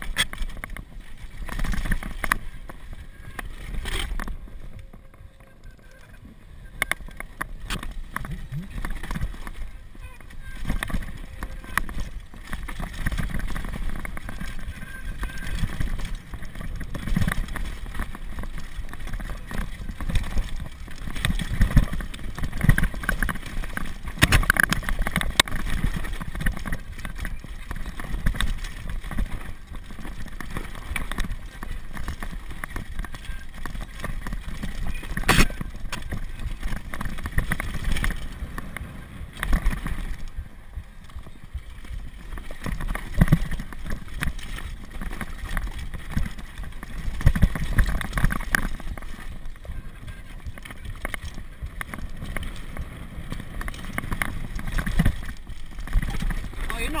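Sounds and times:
bike knocking and clattering: 0.0s - 5.6s, 6.8s - 57.0s
tyres crunching on loose stones: 0.0s - 57.0s.

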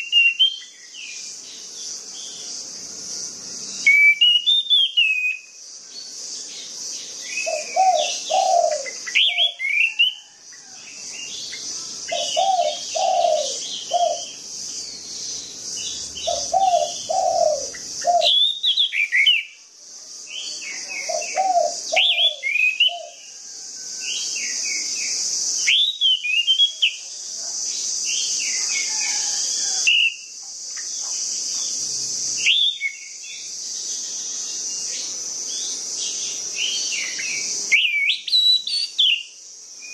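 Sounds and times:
steady high hiss: 0.0s - 39.9s
thrush singing: 11.3s - 18.4s.

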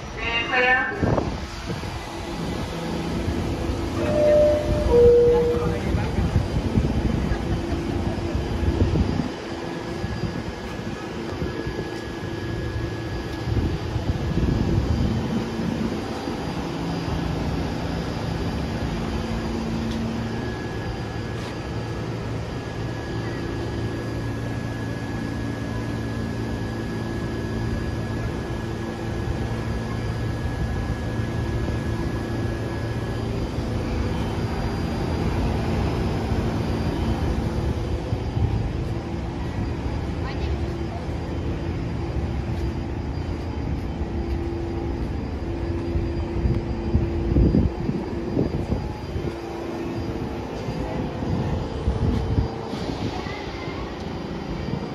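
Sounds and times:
constant hums: 0.0s - 54.9s
subway train mechanical drone: 0.0s - 54.9s
thin high tone: 3.9s - 6.6s.

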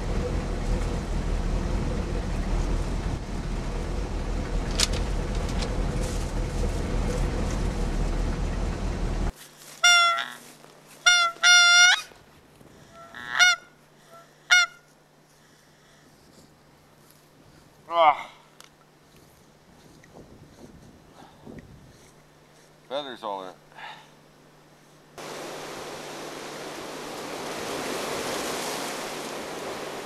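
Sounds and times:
engine rumble and hiss: 0.0s - 9.8s, 12.2s - 30.0s
goose honking: 9.8s - 12.1s, 13.0s - 14.8s.

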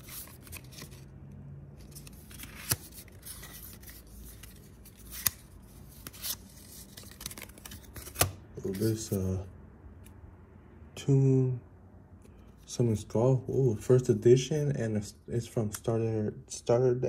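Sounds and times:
cards sliding in hands: 0.0s - 1.1s, 1.8s - 9.3s.

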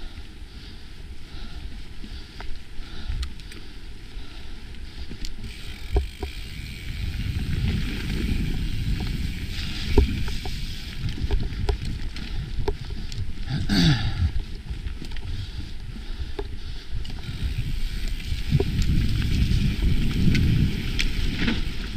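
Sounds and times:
bike tyres rolling over dirt: 0.0s - 21.9s
bike knocks and rattles: 5.4s - 13.1s, 17.2s - 21.9s.

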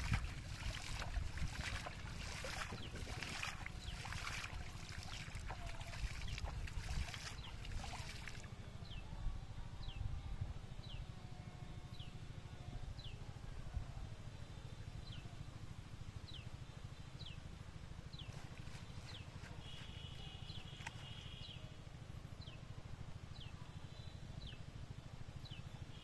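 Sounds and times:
water splashing: 0.0s - 8.5s
low steady rumble: 0.0s - 26.0s.

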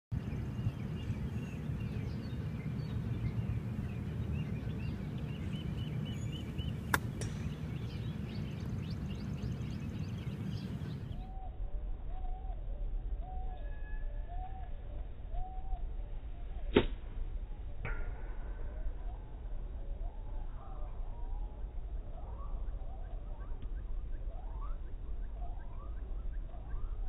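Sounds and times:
birds chirping: 0.1s - 11.4s
golf club striking ball: 6.8s - 8.0s.

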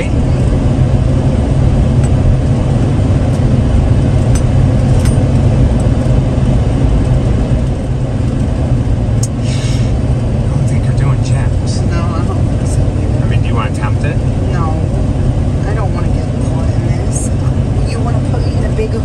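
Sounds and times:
car engine and tyre noise: 0.0s - 19.0s.

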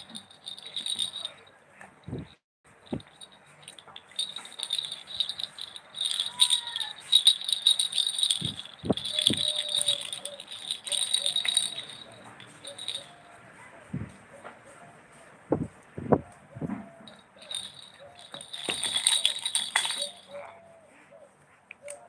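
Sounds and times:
baby rattle shaken: 0.0s - 13.4s, 16.9s - 20.6s.

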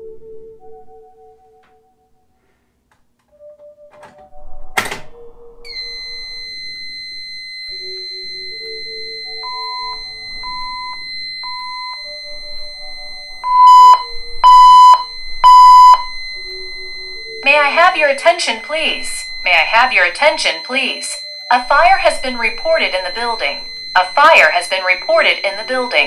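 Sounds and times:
pulsing fire alarm tone: 3.3s - 26.0s
soft pitched tones: 5.3s - 26.0s
steady high-pitched tone: 5.5s - 26.0s.

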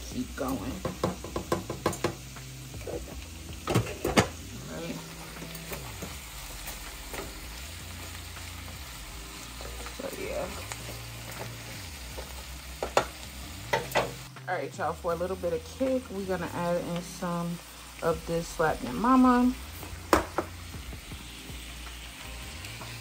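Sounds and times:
food sizzling in a frying pan: 0.0s - 23.0s
spoon knocking against pan: 0.8s - 2.2s, 20.1s - 20.5s.

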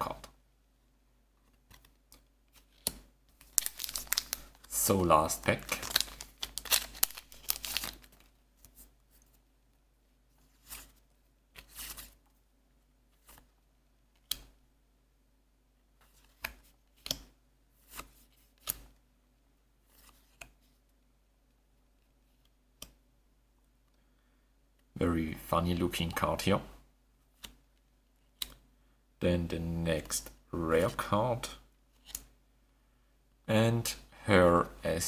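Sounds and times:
cards rustling: 1.5s - 9.4s, 11.6s - 12.2s
plastic wrapper tearing and crinkling: 3.4s - 4.7s, 5.5s - 8.3s.

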